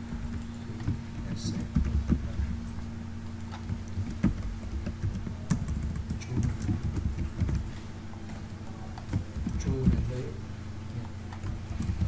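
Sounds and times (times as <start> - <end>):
steady low hum: 0.0 - 12.0
keyboard and mouse clicks: 3.4 - 7.6, 8.4 - 10.0, 11.3 - 12.0.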